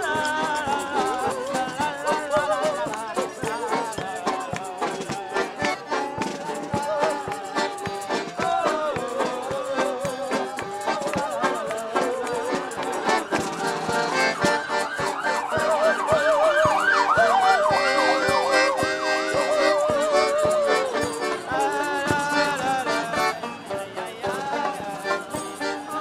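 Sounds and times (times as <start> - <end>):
accordion notes: 0.0 - 26.0
marching street band playing: 0.0 - 26.0
siren-like wail: 14.5 - 18.5.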